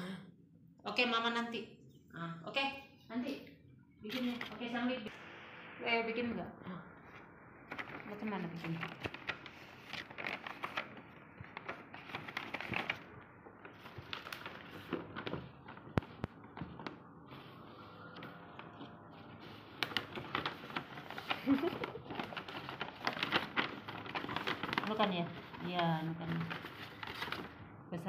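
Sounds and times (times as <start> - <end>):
wrapping paper rustling: 7.1 - 18.0, 18.6 - 27.6.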